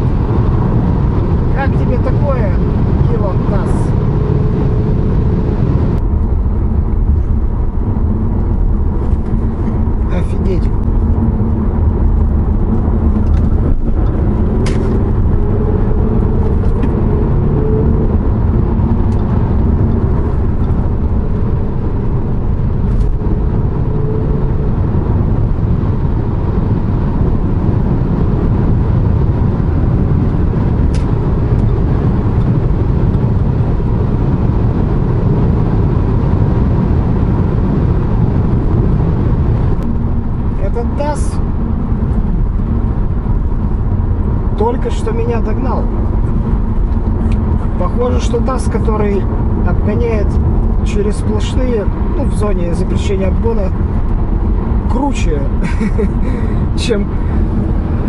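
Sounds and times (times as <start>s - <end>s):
road and engine rumble: 0.0s - 58.0s.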